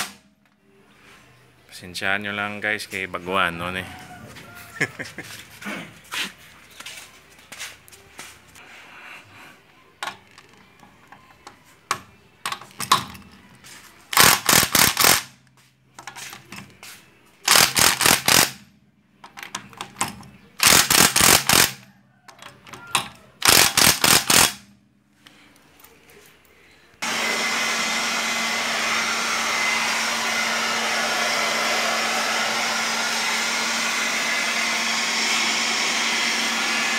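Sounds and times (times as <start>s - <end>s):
impact wrench hammering: 23.4s - 24.7s.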